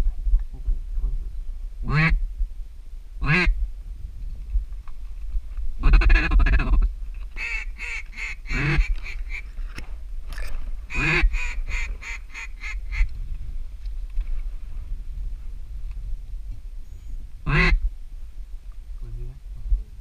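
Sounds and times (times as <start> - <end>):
wind on microphone: 0.0 - 20.0
duck call quacking: 3.2 - 3.5, 5.8 - 6.8, 7.4 - 9.4, 10.9 - 13.1, 17.5 - 17.8.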